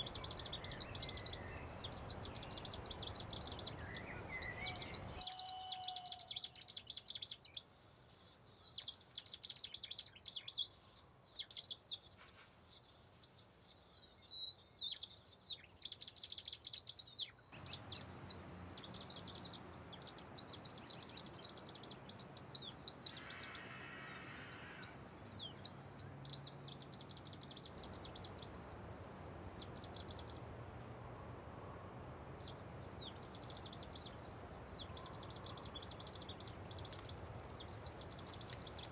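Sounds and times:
wooden bird whistles chirping: 0.0s - 30.4s
steady background hiss: 0.0s - 38.9s.

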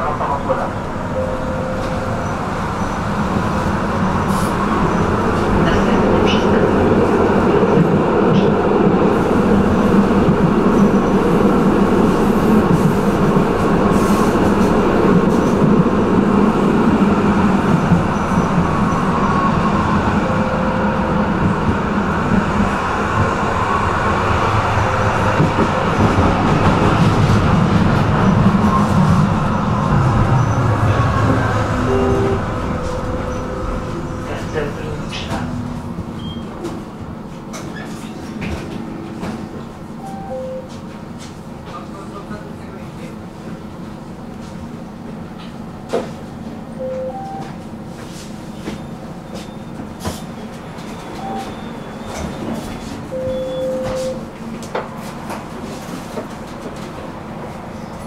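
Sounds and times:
tram rumbling along rails: 0.0s - 58.0s.

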